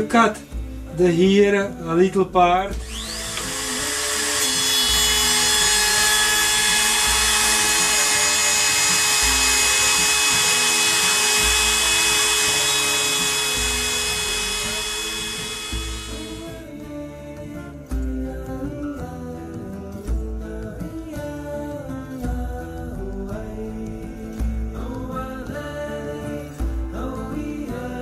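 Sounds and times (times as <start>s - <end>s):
router whining cutting wood: 2.7s - 16.6s.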